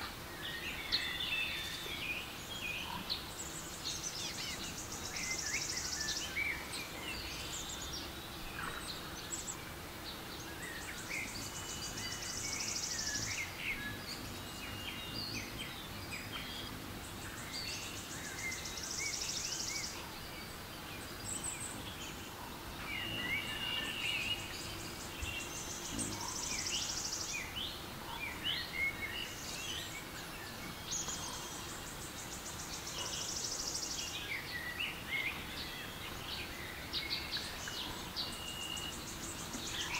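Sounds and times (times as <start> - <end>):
birds chirping and whistling: 20.8 - 39.9.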